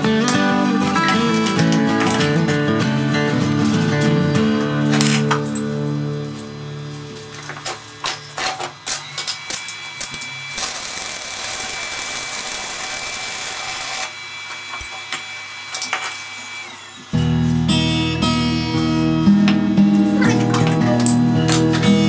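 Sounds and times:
guitar music: 0.0 - 8.1, 17.1 - 22.0
power tool motor whining: 8.8 - 17.2.

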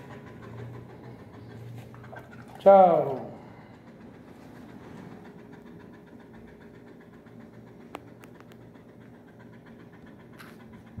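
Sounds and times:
puppy panting softly: 0.0 - 11.0.

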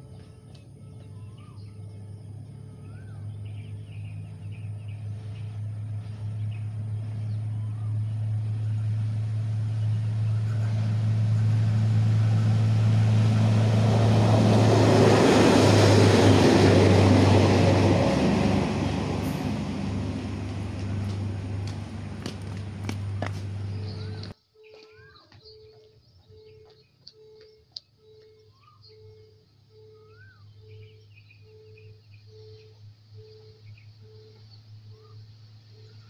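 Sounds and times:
heavy vehicle passing: 0.0 - 24.4.

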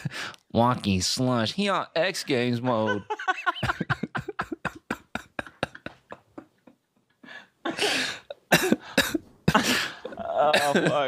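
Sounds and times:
men laughing: 2.4 - 11.0
coughing: 7.7 - 11.0.

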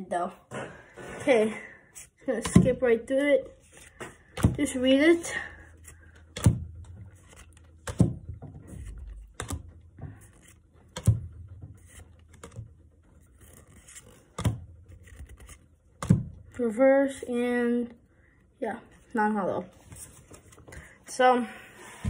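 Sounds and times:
card-on-card scraping: 5.7 - 7.9, 11.8 - 15.8.

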